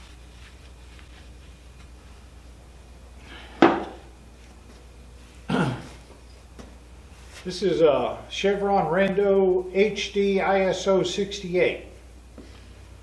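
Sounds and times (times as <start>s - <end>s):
faint handling noise: 0.0s - 2.9s.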